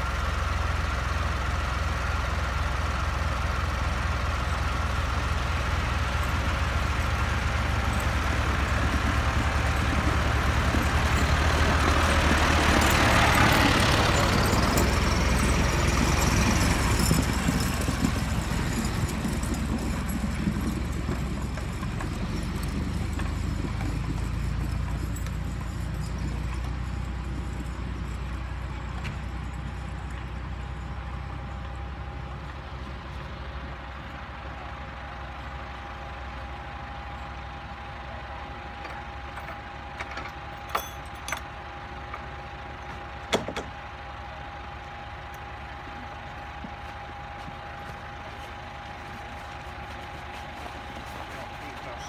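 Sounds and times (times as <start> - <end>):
tractor engine idling: 0.0 - 52.0
metal clanks of wagon gate: 38.8 - 43.8.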